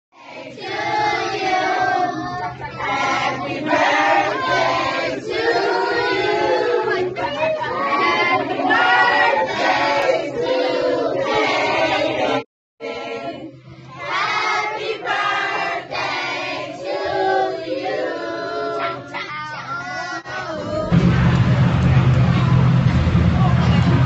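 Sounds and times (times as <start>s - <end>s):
group singing in chorus: 0.2s - 19.0s.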